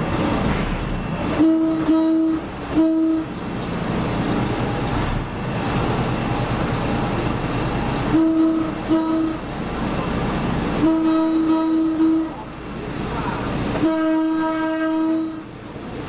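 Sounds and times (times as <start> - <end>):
train rumbling slowly: 0.0 - 16.0
train horn blasts: 1.4 - 3.3, 8.1 - 9.4, 10.8 - 12.5, 13.8 - 15.5.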